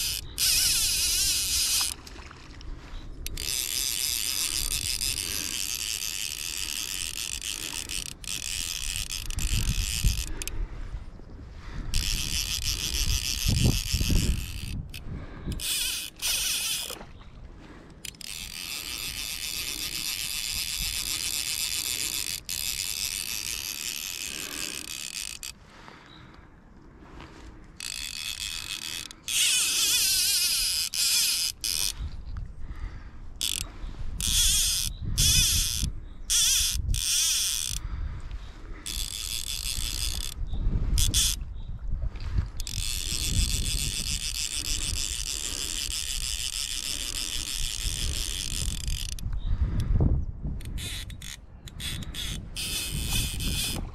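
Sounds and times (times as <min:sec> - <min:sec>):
fishing reel ratchet rattling: 0:00.0 - 0:02.1, 0:03.2 - 0:10.6, 0:11.9 - 0:17.0, 0:18.0 - 0:25.6, 0:27.8 - 0:32.1, 0:33.4 - 0:37.8, 0:38.8 - 0:41.4, 0:42.5 - 0:49.9, 0:50.6 - 0:53.9.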